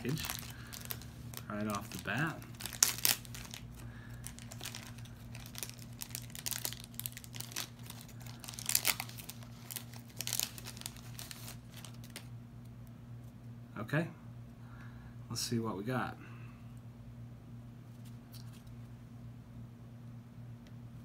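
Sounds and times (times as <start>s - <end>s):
wrapper crinkling and tearing: 0.0s - 12.3s.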